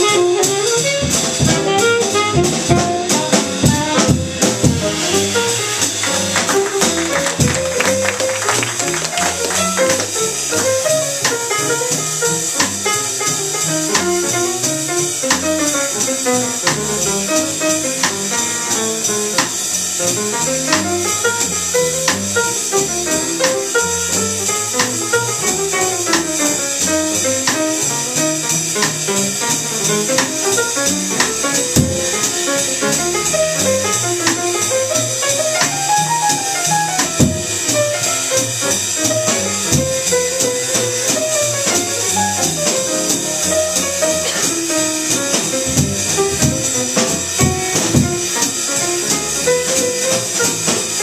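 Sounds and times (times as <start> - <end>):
alto saxophone: 0.0 - 12.6
drum and cymbal hits: 0.0 - 51.0
piano: 0.0 - 51.0
upright bass: 0.0 - 51.0.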